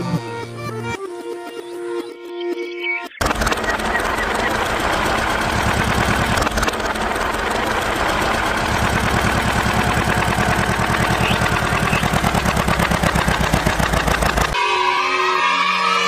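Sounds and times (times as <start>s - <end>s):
tractor engine chugging: 3.2s - 14.7s.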